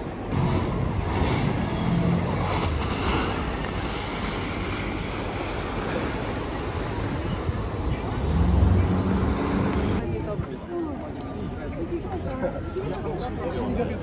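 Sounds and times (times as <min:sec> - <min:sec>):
water churning in boat wake: 0:00.0 - 0:14.0
wind buffeting microphone: 0:00.3 - 0:10.9.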